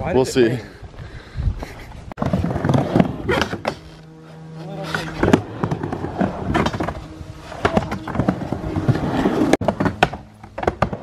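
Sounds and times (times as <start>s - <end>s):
skateboard wheels rumbling on ramp: 2.2s - 3.9s, 4.9s - 11.0s
skateboard clacks: 7.6s - 11.0s.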